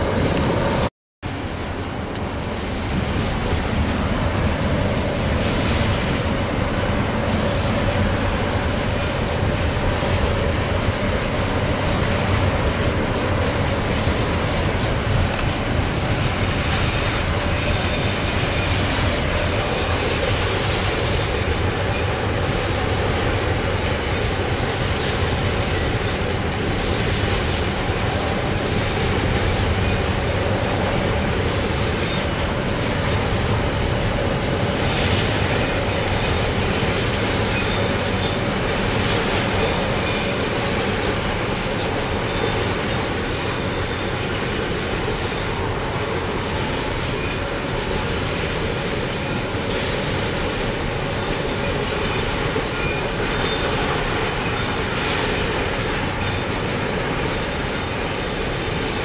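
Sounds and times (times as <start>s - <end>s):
train wagons rumbling on rails: 0.0s - 59.0s
high-pitched wheel squeal: 16.2s - 22.3s.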